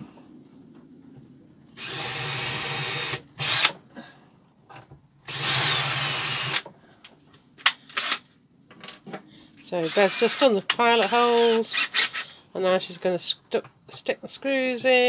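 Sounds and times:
cordless drill boring: 0:01.8 - 0:03.8, 0:05.3 - 0:06.6, 0:07.9 - 0:08.2, 0:09.8 - 0:12.2.

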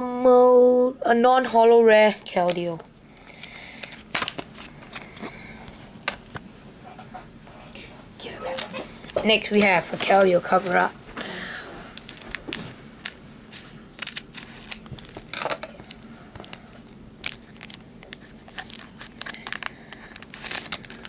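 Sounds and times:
foil wrapper crinkling: 0:02.4 - 0:06.4, 0:11.9 - 0:21.0
scissors snipping foil: 0:12.0 - 0:16.6, 0:17.2 - 0:21.0.

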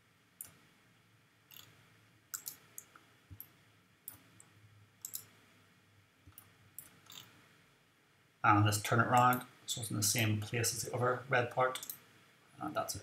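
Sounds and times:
computer mouse clicks: 0:00.4 - 0:00.6, 0:01.5 - 0:05.4, 0:06.2 - 0:07.3, 0:11.8 - 0:12.0.

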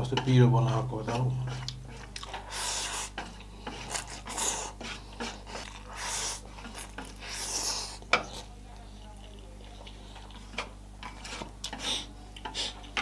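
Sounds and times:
person chewing: 0:01.4 - 0:08.5, 0:09.2 - 0:13.0.

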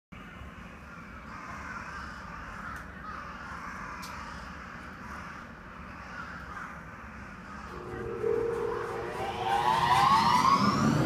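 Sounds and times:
crows cawing: 0:00.9 - 0:07.7
steady low hum: 0:07.7 - 0:11.0
train electric blower hum: 0:07.7 - 0:11.0.

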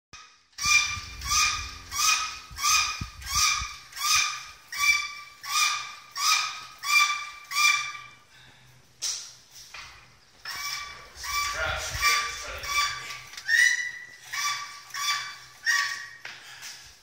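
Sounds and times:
hydraulic hoist pump squeaking: 0:00.6 - 0:08.2, 0:10.4 - 0:16.3.

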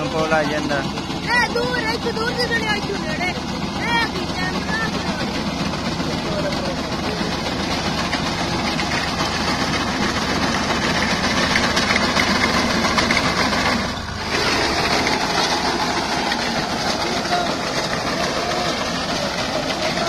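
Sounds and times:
tractor engine running: 0:00.0 - 0:20.0.

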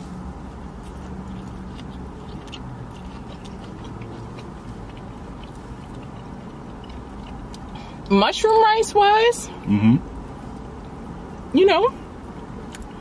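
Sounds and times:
people chewing food: 0:00.0 - 0:08.1, 0:12.3 - 0:13.0
steady low hum: 0:00.0 - 0:13.0.

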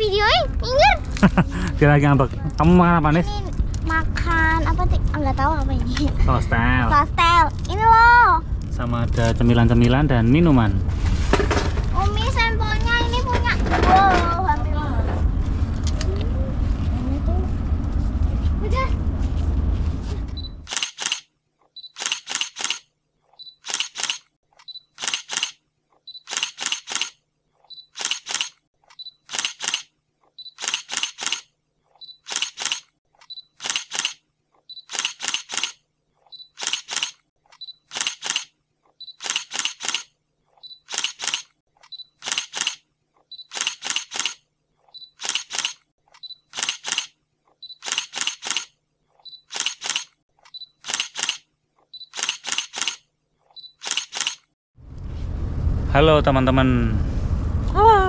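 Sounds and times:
camera shutter double click: 0:20.6 - 0:21.3, 0:21.9 - 0:22.8, 0:23.6 - 0:24.2, 0:24.9 - 0:25.6, 0:26.2 - 0:27.2, 0:30.5 - 0:31.5, 0:33.6 - 0:34.2, 0:34.8 - 0:35.8, 0:37.9 - 0:38.5, 0:39.1 - 0:40.1, 0:42.2 - 0:42.8, 0:43.4 - 0:44.4, 0:46.5 - 0:47.1, 0:47.8 - 0:48.7, 0:49.4 - 0:50.1, 0:50.8 - 0:51.4, 0:52.1 - 0:53.0, 0:53.8 - 0:54.4.

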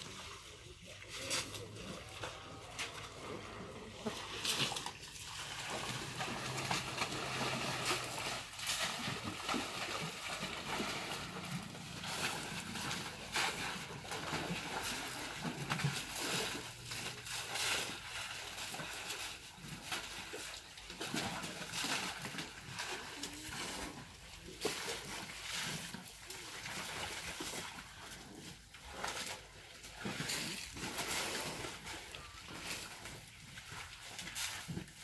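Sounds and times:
elephants splashing in muddy water: 0:00.0 - 0:35.0.

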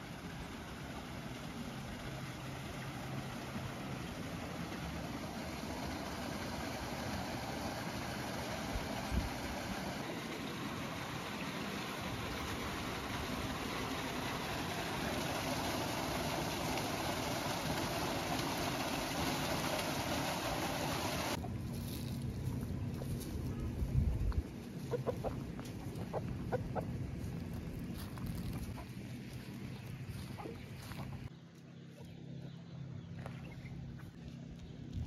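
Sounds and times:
water gushing into a tank: 0:00.0 - 0:21.4.

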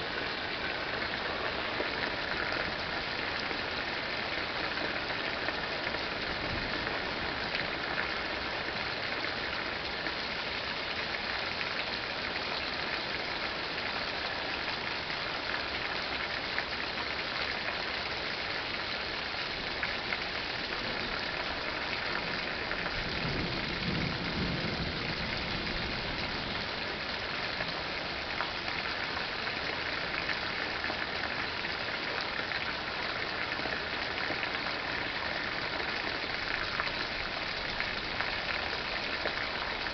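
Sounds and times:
rain falling: 0:00.0 - 0:39.9
low thunder rumble: 0:22.5 - 0:26.8.

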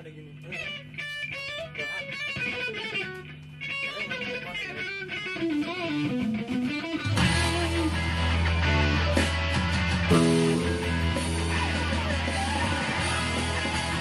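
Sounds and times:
plucked clean guitar: 0:00.4 - 0:14.0
loud rock band: 0:05.1 - 0:14.0.

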